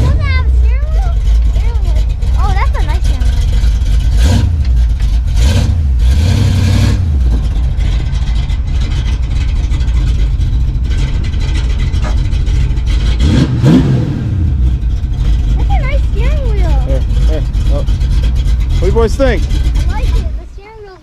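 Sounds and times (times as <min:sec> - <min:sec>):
car engine revving and idling: 0:00.0 - 0:21.0.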